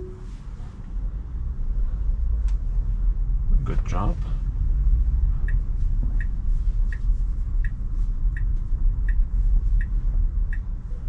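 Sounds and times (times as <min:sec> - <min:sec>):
low rumble of car moving: 0:00.0 - 0:11.0
turn signal ticking: 0:05.3 - 0:10.9.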